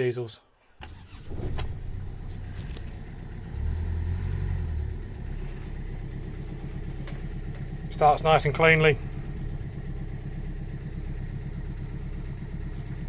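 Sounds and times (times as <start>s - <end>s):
diesel engine idling rumble: 0.8s - 13.0s.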